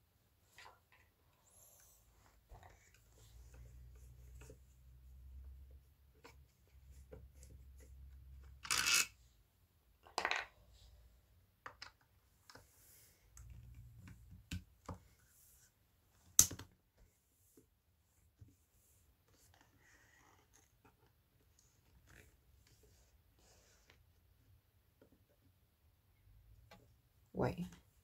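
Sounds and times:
small hard parts clicking: 8.6s - 9.1s.

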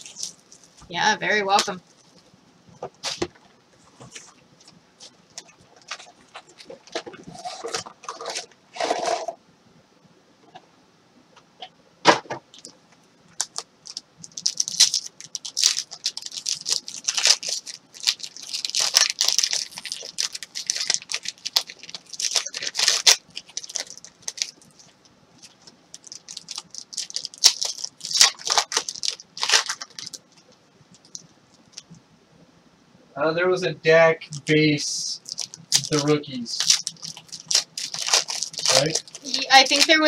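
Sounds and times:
foil wrappers tearing and crinkling: 0.0s - 0.8s, 13.4s - 30.4s, 35.2s - 40.0s.

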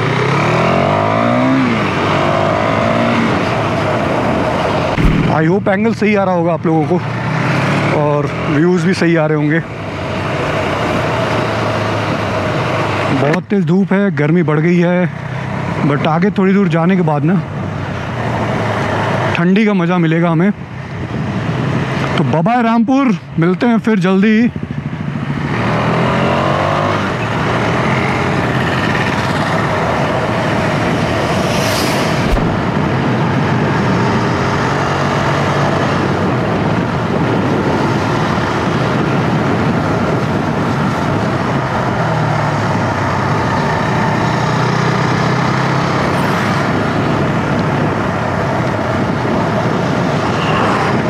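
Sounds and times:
motorcycle engine drone: 0.0s - 8.0s, 24.6s - 51.0s
wind rushing over microphone: 1.6s - 7.9s, 20.6s - 22.2s, 27.4s - 51.0s.

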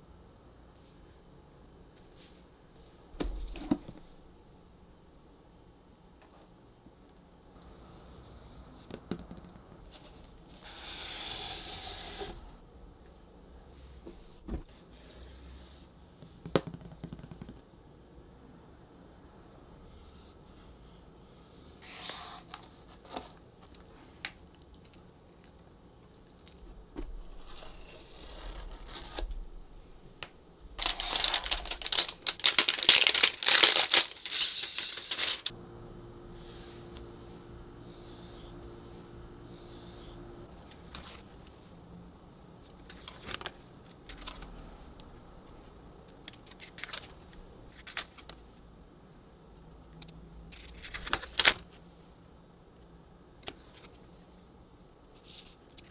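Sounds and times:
pages turning: 27.0s - 29.4s, 30.8s - 35.5s, 40.6s - 41.3s, 42.8s - 44.6s, 50.5s - 51.6s
plastic crinkling and tearing: 30.8s - 35.5s.

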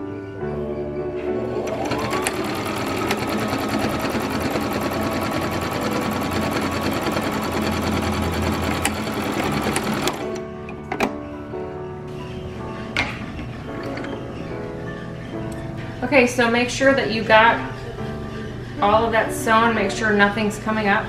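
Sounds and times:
sewing machine stitching: 1.5s - 10.4s.

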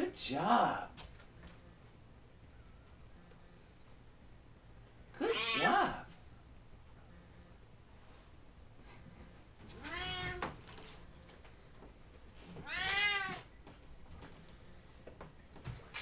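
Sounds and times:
cat meowing: 5.3s - 6.1s, 9.8s - 10.5s, 12.6s - 13.5s.

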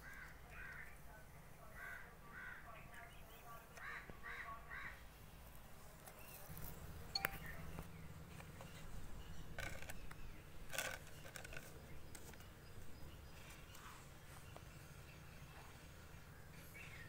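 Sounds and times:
low steady hum: 4.5s - 17.0s.

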